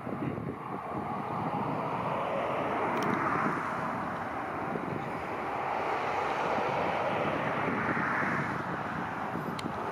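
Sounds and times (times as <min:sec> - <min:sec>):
jet engines rumbling: 0:00.0 - 0:09.9.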